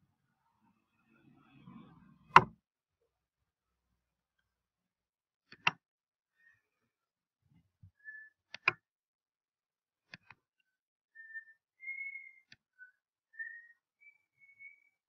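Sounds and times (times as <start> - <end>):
computer mouse clicking: 5.5 - 5.8, 8.5 - 8.8.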